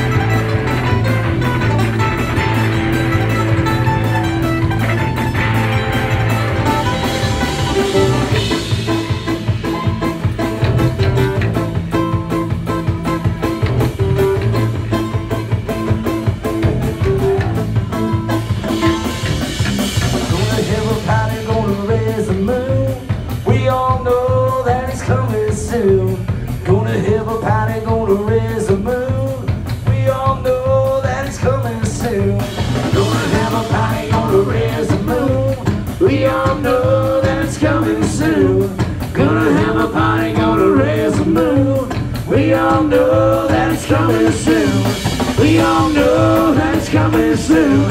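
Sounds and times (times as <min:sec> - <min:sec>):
live rock and roll band: 0:00.0 - 0:47.9
person singing: 0:20.3 - 0:47.9.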